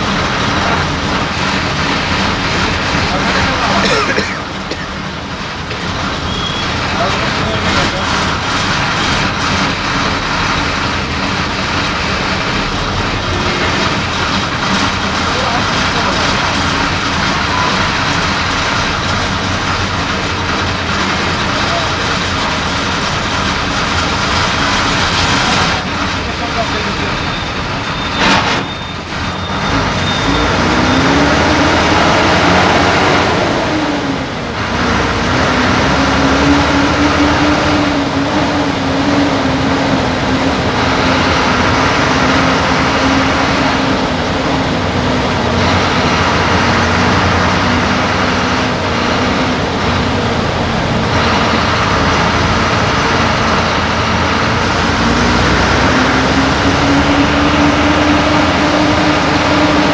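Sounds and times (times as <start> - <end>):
bus engine running: 0.0 - 59.9
road noise: 0.0 - 59.9.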